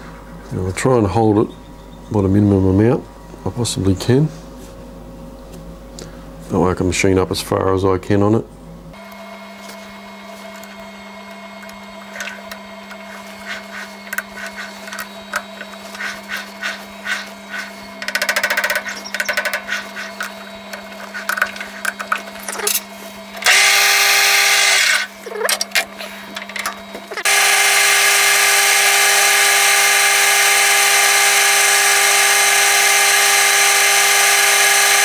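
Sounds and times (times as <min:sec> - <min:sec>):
steady low hum: 0:00.0 - 0:35.0
lathe spindle running: 0:09.0 - 0:35.0.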